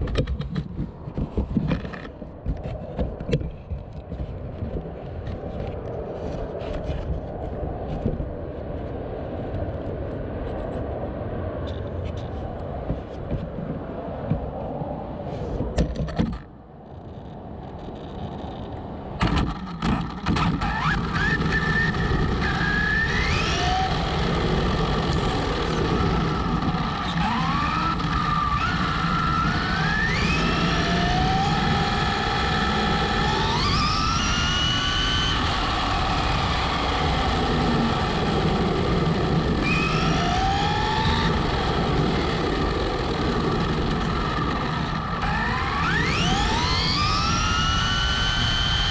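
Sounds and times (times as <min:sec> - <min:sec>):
steady rumble: 0:00.0 - 0:48.9
electric motor whining: 0:19.2 - 0:48.9.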